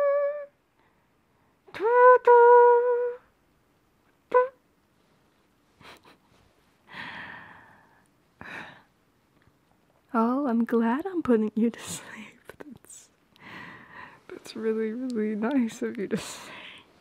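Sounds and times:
woman humming: 0.0s - 0.6s, 1.7s - 3.3s, 4.3s - 4.6s
soft breaths: 4.9s - 9.0s, 11.8s - 17.0s.

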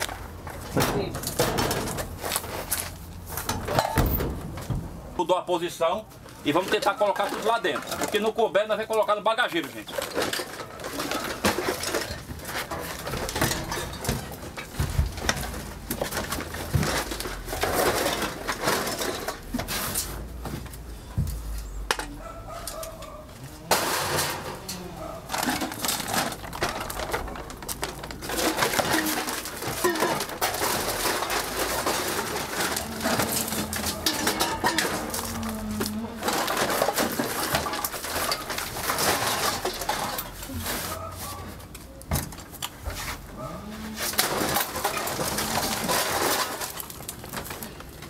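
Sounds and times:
scrap metal clanking: 9.7s - 20.4s, 22.5s - 41.4s, 42.4s - 47.6s.

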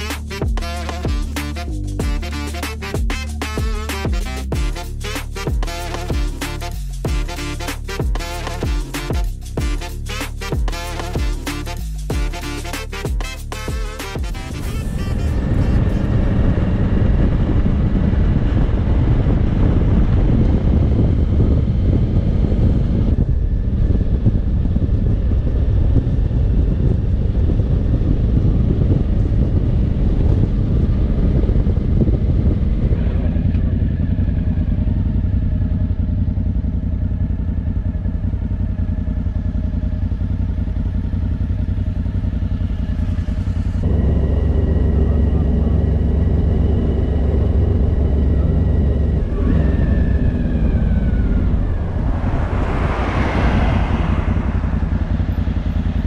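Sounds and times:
motorcycle engine drone: 0.0s - 56.0s.

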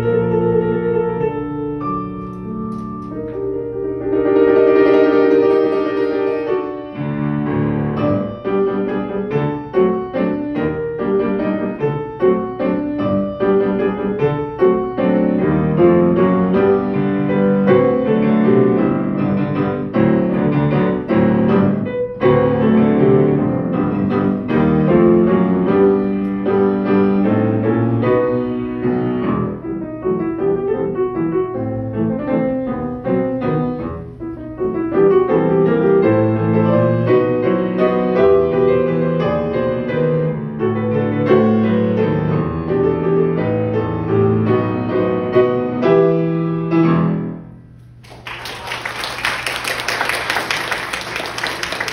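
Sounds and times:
solo grand piano: 0.0s - 51.9s
audience applauding: 48.0s - 51.9s.

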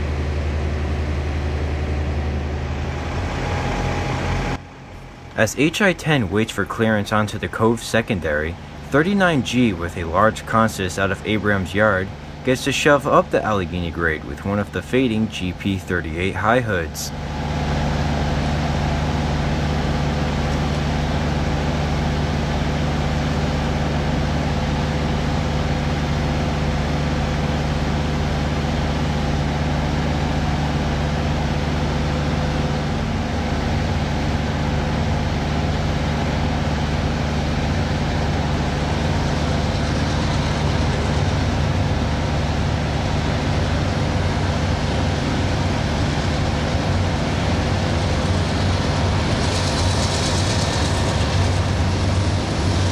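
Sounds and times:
diesel locomotive engine drone: 0.0s - 52.9s
freight train noise: 0.0s - 52.9s.

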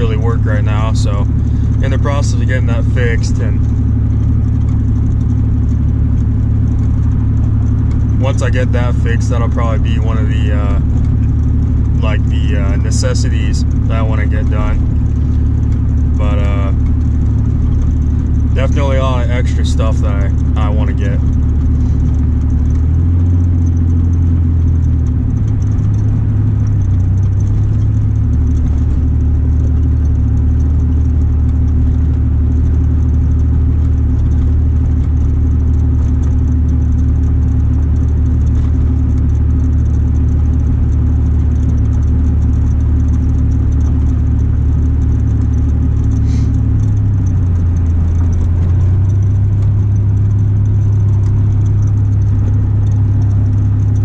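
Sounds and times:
exhaust droning: 0.0s - 54.0s.

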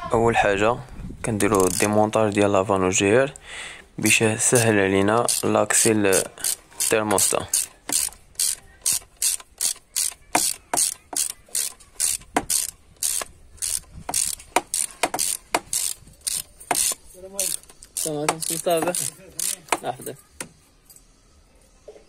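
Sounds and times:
ratchet wrench clicking: 1.5s - 2.5s, 4.6s - 19.9s.

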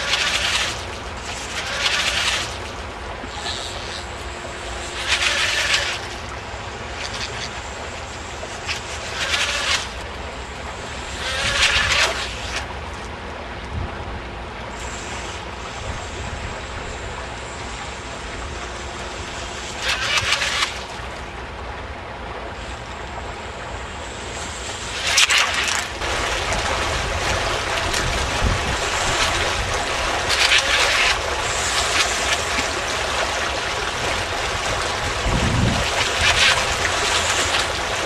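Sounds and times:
water spray hissing: 0.0s - 6.3s, 7.0s - 10.0s, 24.3s - 38.0s
rc boat motor whine: 0.0s - 13.0s, 14.6s - 21.5s, 22.6s - 38.0s
wind rumble on microphone: 13.4s - 19.5s, 25.6s - 38.0s.

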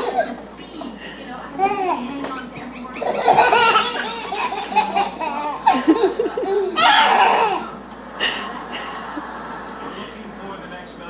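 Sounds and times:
babies belly-laughing: 0.0s - 0.4s, 3.0s - 10.2s.

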